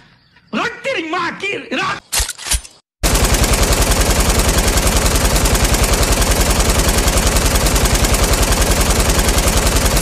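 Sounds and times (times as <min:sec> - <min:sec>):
machine gun firing: 0:03.0 - 0:10.0.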